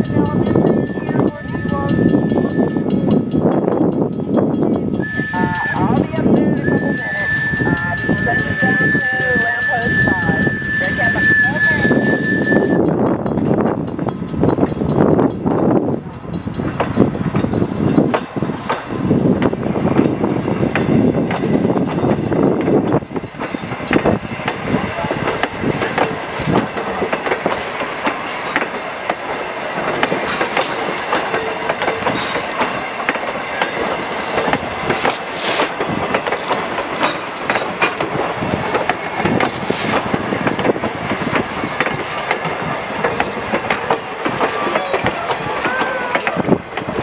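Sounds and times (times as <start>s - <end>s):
train wheels rumbling on rails: 0.0s - 47.0s
wheels clacking over rail joints: 0.0s - 47.0s.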